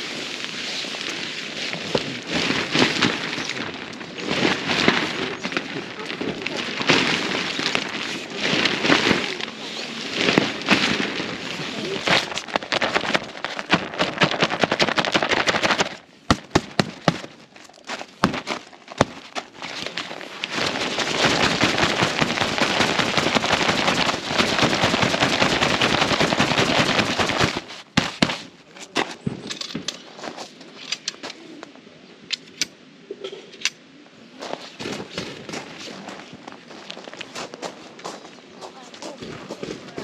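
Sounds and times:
tent zipper being pulled: 0.0 - 16.0, 18.0 - 28.4
clicks and knocks of tent handling: 0.0 - 31.4, 34.5 - 37.6.

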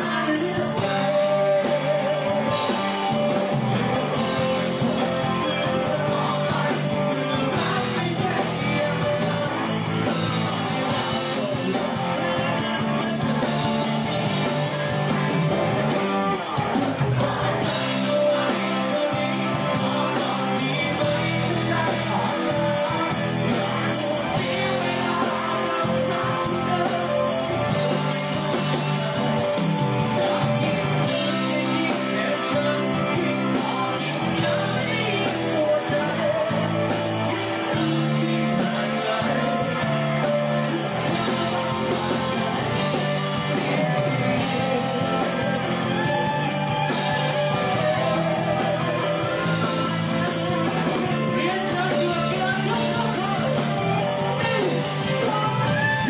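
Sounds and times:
electric guitar: 0.0 - 56.0
keyboard: 0.0 - 56.0
man singing into a microphone: 0.0 - 56.0.

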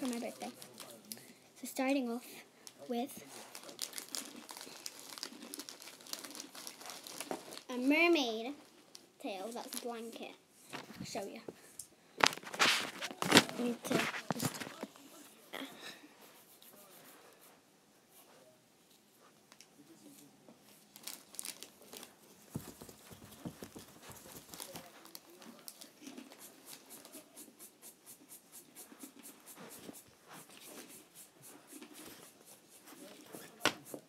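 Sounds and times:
blanket rustling: 12.2 - 14.8, 20.9 - 25.8.

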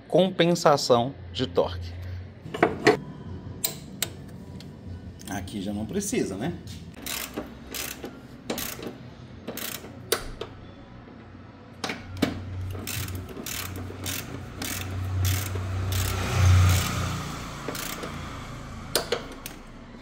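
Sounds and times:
ratchet wrench clicking: 7.0 - 10.5, 12.6 - 19.8.

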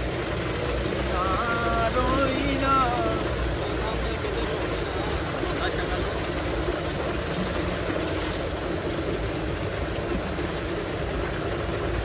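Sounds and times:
water gushing into a tank: 0.0 - 12.0.

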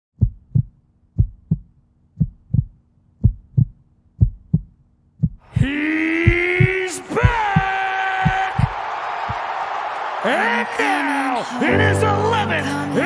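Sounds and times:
heartbeat thumps: 0.2 - 9.4.

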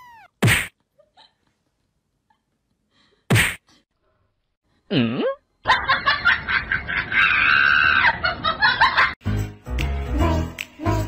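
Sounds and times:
brief cry: 0.0 - 0.4.

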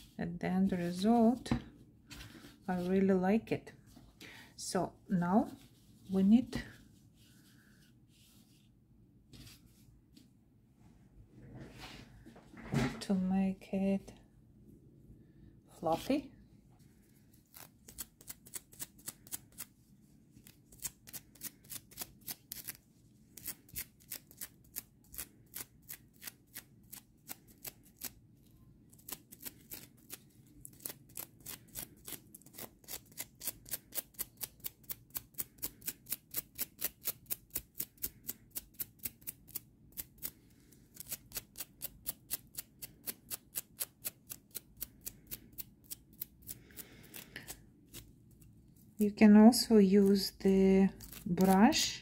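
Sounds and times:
brush scratching over yarn: 0.0 - 1.3, 5.2 - 8.7.

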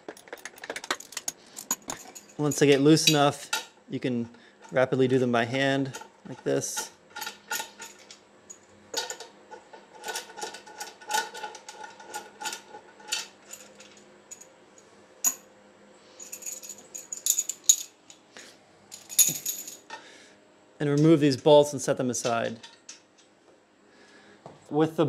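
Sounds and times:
metal bolts clicking and rattling: 0.0 - 3.8, 4.6 - 14.4, 16.3 - 18.0, 19.0 - 20.0.

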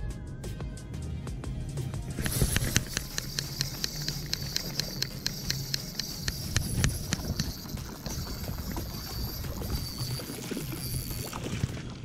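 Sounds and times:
fishing reel clicking: 2.2 - 11.5
wind rumbling on microphone: 6.2 - 12.0.

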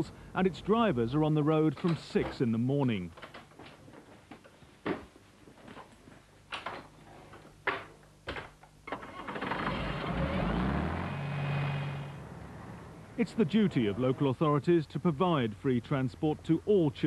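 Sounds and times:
bus diesel engine revving: 9.1 - 12.9.

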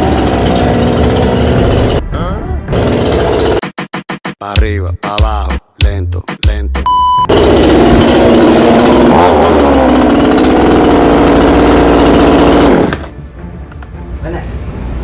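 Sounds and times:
chainsaw revving: 0.0 - 2.0, 2.7 - 3.6, 7.3 - 13.1
short beep: 6.8 - 7.3.

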